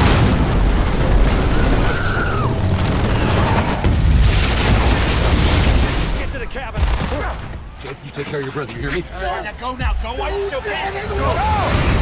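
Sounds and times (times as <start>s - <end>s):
booming explosions: 0.0s - 7.5s, 11.2s - 12.0s.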